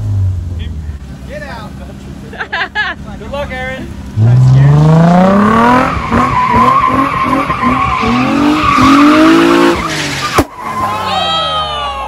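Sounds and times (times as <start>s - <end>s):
car engine revving: 3.6s - 11.0s.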